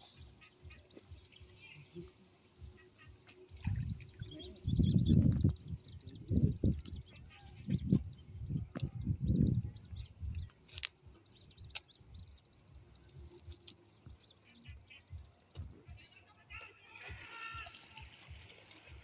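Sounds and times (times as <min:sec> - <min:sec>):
muffled bumps on microphone: 0:04.7 - 0:10.4.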